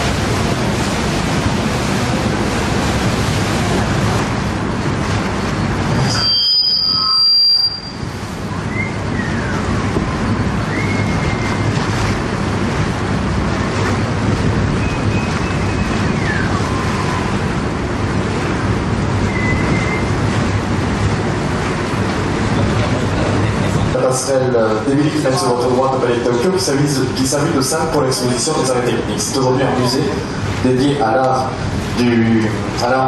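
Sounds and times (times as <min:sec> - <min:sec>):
boat engine hum: 0:00.0 - 0:33.0
water: 0:00.0 - 0:33.0
brief high tone: 0:06.0 - 0:08.0
wind buffeting microphone: 0:08.0 - 0:24.0.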